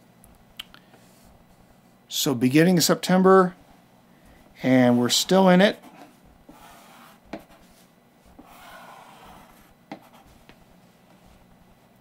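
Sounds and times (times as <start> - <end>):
pencil scratching on paper: 4.8 - 10.5.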